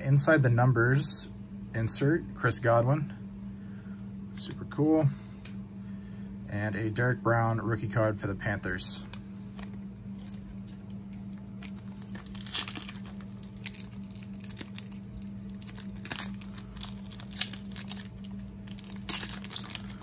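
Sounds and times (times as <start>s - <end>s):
foil pack tearing and crinkling: 9.1s - 20.0s.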